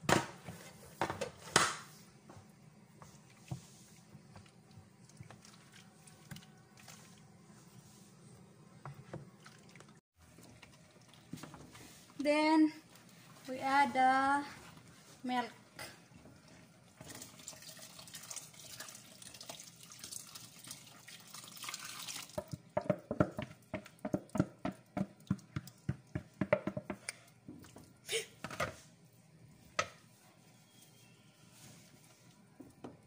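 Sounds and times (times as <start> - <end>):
milk splashing into pot: 17.0 - 26.0
wooden spoon knocking pot: 22.4 - 27.0.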